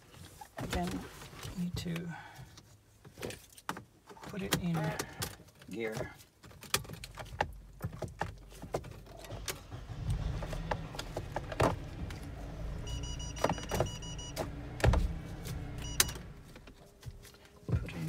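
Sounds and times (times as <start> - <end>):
pulsing electronic beep: 12.8 - 14.4.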